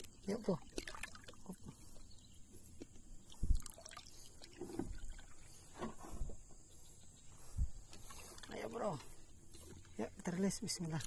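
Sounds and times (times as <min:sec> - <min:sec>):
water splashing and dripping: 0:00.0 - 0:02.0, 0:02.8 - 0:06.0.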